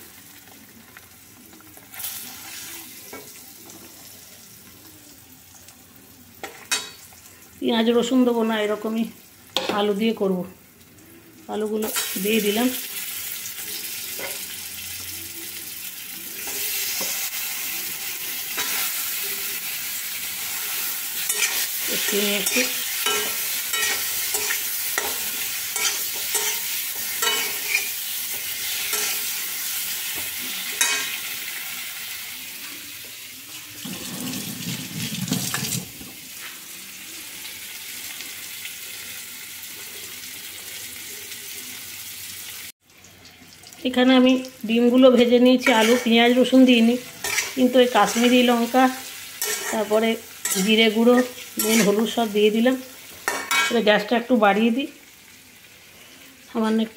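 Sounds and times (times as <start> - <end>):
food sizzling in hot oil: 0.0 - 56.9
metal spatula scraping a pan: 19.9 - 29.4, 45.2 - 46.4, 47.0 - 52.3.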